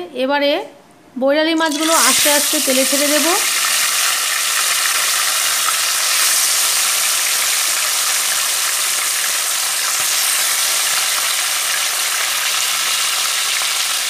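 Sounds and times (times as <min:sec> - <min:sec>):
fish sizzling in hot oil: 0:01.7 - 0:14.0.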